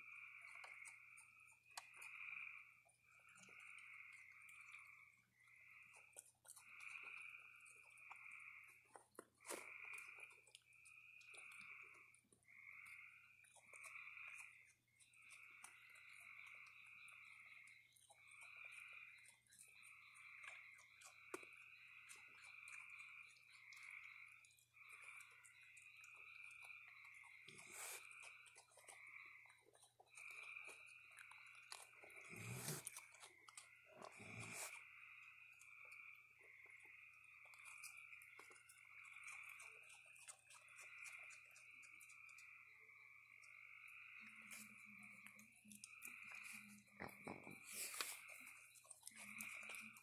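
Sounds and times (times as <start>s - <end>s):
frogs trilling: 0.0s - 50.0s
raccoons chewing dry food: 0.0s - 50.0s.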